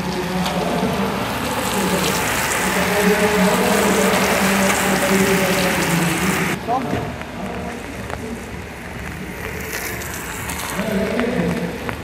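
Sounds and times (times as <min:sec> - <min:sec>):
bike tyres hissing on wet road: 0:00.0 - 0:12.0.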